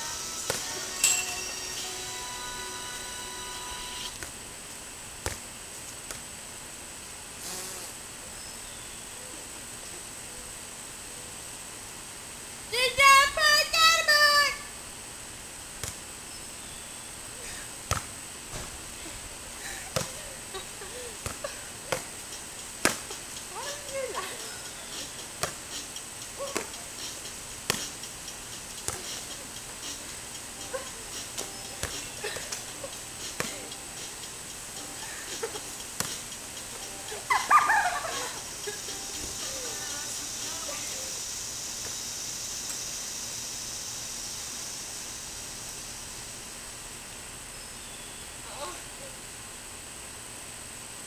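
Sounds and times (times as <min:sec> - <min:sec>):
tetherball smacks: 0:05.2 - 0:05.5, 0:15.8 - 0:16.0, 0:17.9 - 0:18.8, 0:19.9 - 0:20.2, 0:21.2 - 0:22.2, 0:22.8 - 0:23.2, 0:25.4 - 0:25.6, 0:26.5 - 0:26.7, 0:27.6 - 0:28.0, 0:36.0 - 0:36.2
hand slapping rubber ball: 0:15.8 - 0:16.0, 0:22.8 - 0:23.2, 0:27.7 - 0:28.0, 0:36.0 - 0:36.3.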